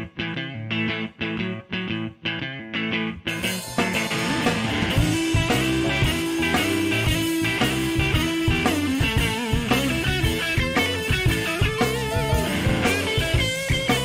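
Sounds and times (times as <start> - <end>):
electric blues band playing live: 0.0 - 14.0
lead electric guitar: 0.0 - 14.0
drum hits: 3.6 - 14.0.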